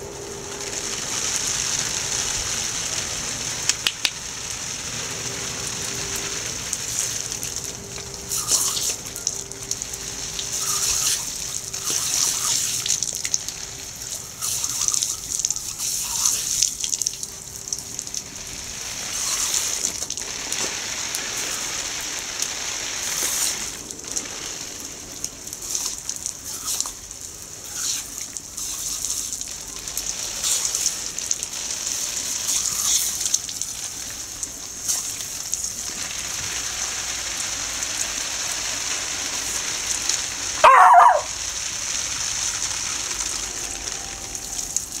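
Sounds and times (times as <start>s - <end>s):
sprinkler spraying water: 0.0s - 45.0s
puppy barking: 40.6s - 41.4s.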